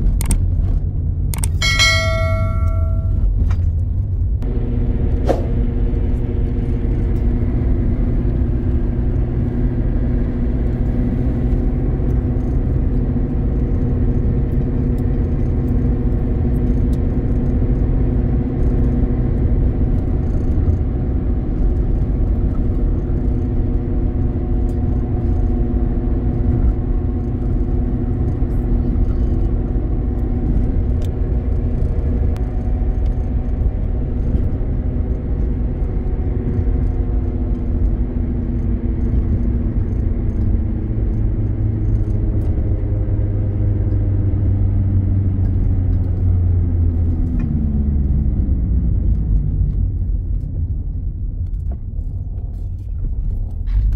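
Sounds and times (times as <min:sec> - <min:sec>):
car engine drone and road rumble: 0:00.0 - 0:53.9
click and ringing chime: 0:01.6 - 0:03.3.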